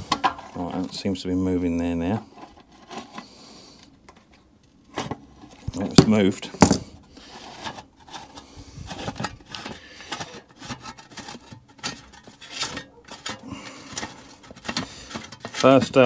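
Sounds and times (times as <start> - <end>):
spanner scraping and clicking on metal: 9.0 - 16.0.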